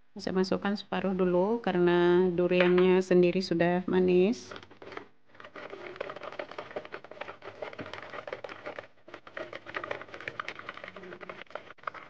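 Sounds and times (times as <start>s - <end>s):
liquid swishing: 4.4s - 12.0s
whisk clicking against bowl: 5.5s - 12.0s.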